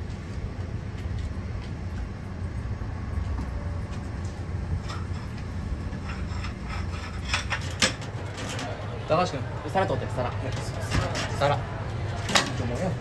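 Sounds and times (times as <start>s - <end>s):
kitchen equipment rumbling: 4.6s - 13.0s
dishes clinking: 4.8s - 8.8s.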